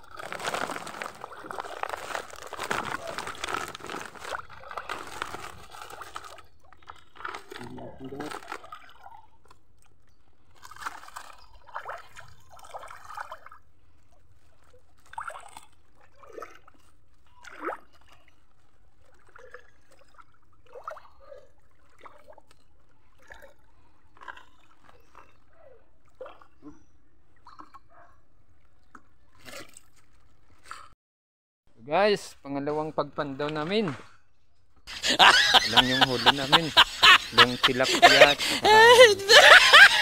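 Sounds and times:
river water splashing and trickling: 0.0s - 23.6s.

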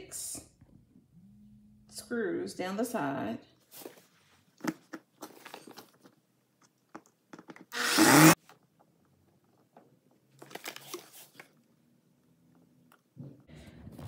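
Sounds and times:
power drill motor whirr: 7.7s - 8.4s.

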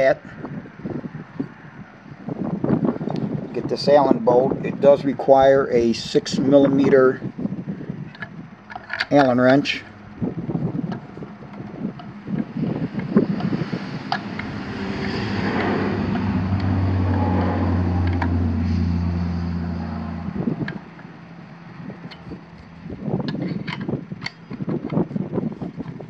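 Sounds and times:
low motor drone: 5.8s - 26.0s
allen wrench clicking on bolt: 8.1s - 9.4s, 23.3s - 25.0s.

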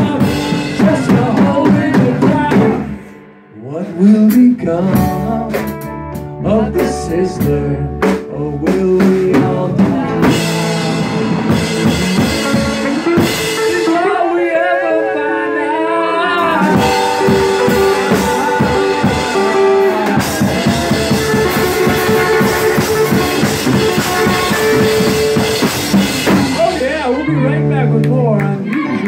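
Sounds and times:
drum kit: 0.0s - 14.3s, 16.3s - 29.0s
electric bass: 0.0s - 29.0s
wavering melody line: 16.3s - 25.6s.

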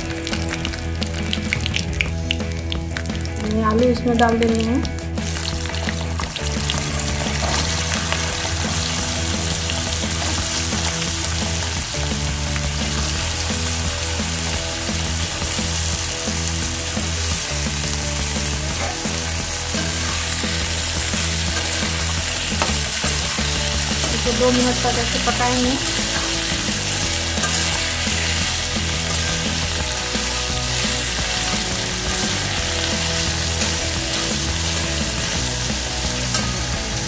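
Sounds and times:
potatoes sizzling in oil: 0.0s - 37.0s.

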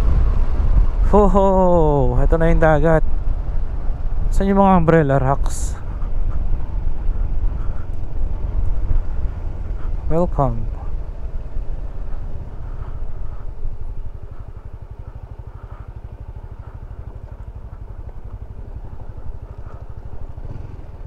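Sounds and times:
scooter engine running at low speed: 0.0s - 21.0s
tyres rolling on gravel: 7.8s - 21.0s.

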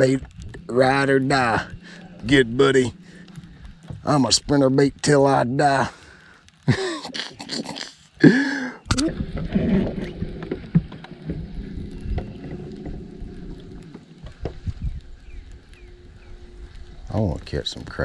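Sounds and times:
man's voice: 0.0s - 3.0s
boat engine rumble: 0.0s - 18.0s.

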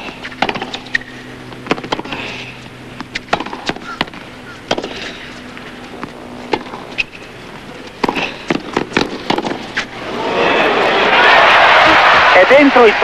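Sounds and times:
racket striking ball: 0.1s - 2.2s, 3.0s - 5.1s, 6.0s - 7.2s, 7.9s - 9.9s
ball bouncing: 0.2s - 2.1s, 3.0s - 5.0s, 8.0s - 9.8s
crowd applause and cheering: 10.0s - 13.0s.

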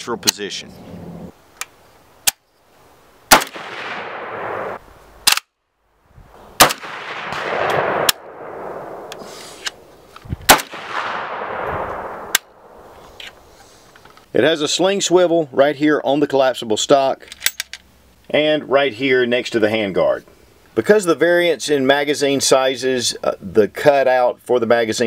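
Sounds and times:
rifle shots with echo: 3.3s - 5.5s, 6.6s - 9.9s, 10.5s - 12.9s.

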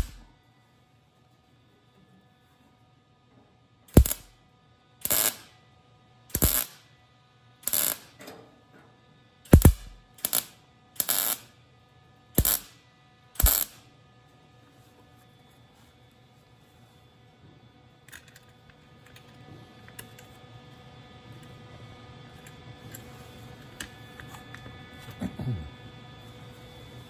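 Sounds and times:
welder arc bursts: 0.0s - 0.3s, 3.9s - 4.4s, 5.0s - 5.5s, 6.3s - 6.8s, 7.6s - 8.2s, 9.5s - 11.5s, 12.4s - 12.8s, 13.4s - 13.8s.

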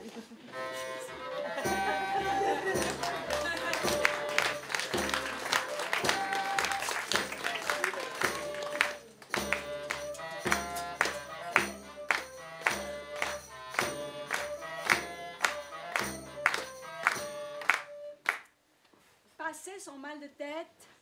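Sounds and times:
sustained melody line: 0.6s - 8.9s
percussion strikes: 0.6s - 17.9s.

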